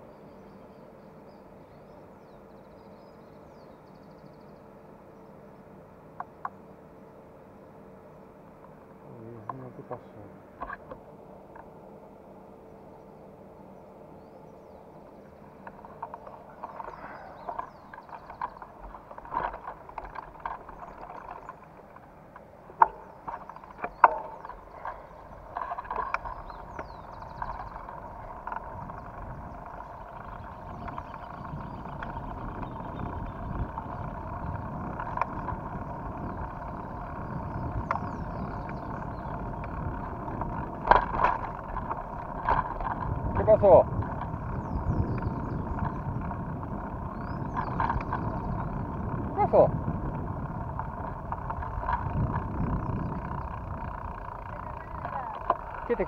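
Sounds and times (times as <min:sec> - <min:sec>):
bike tyres rolling on dirt: 0:14.3 - 0:56.0
bike rattling over bumps: 0:14.9 - 0:56.0.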